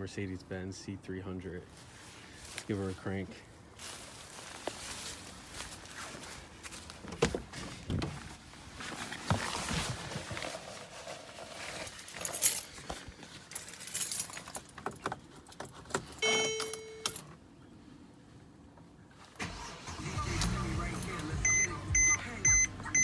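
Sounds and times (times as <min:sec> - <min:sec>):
car keys jangling: 0:12.1 - 0:12.8, 0:13.4 - 0:17.4, 0:20.3 - 0:22.1
electronic chime: 0:16.2 - 0:17.1.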